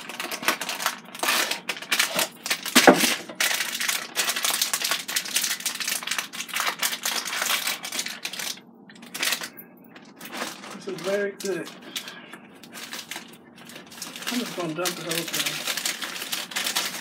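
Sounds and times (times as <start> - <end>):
plastic bag crinkling: 0.0 - 17.0
breading mix poured into bag: 12.8 - 17.0.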